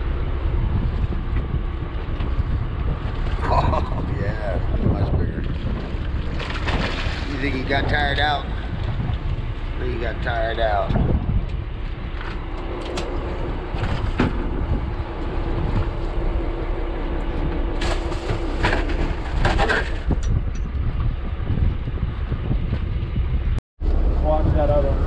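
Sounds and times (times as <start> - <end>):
boat engine running: 0.0 - 25.0
wind noise on microphone: 0.0 - 25.0
fish thumping on boat: 5.8 - 7.5.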